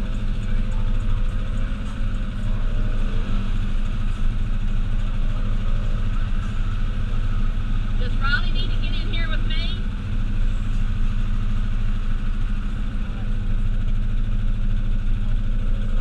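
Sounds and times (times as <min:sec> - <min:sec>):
vehicle engine running steadily: 0:00.0 - 0:16.0.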